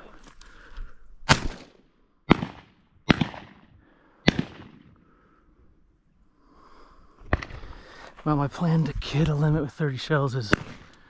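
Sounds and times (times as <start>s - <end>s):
shotgun blasts: 1.2s - 5.0s, 7.3s - 7.7s, 10.5s - 11.0s.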